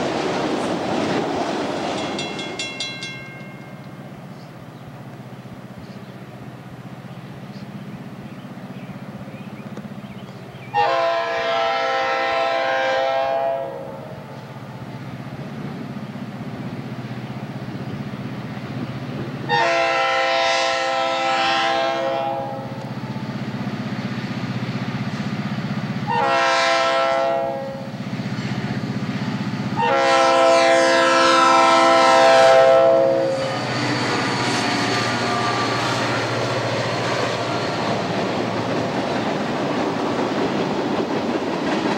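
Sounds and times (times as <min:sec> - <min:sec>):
locomotive air horn blasts: 0:10.7 - 0:14.1, 0:19.5 - 0:22.8, 0:26.1 - 0:27.9, 0:29.8 - 0:34.1.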